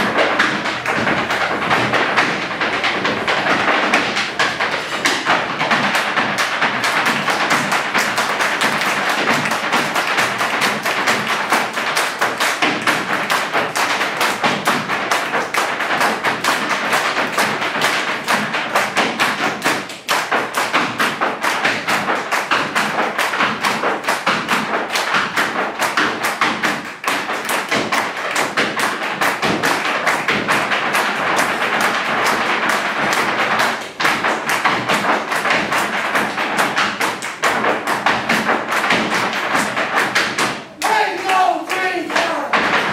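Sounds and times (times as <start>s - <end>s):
hard shoes tapping on stage floor: 0.0s - 42.9s.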